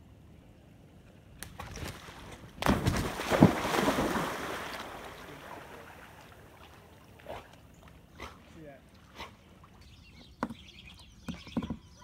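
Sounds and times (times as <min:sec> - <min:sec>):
dog splashing into pond: 0:01.4 - 0:07.6
churning sloshing water: 0:01.7 - 0:09.8.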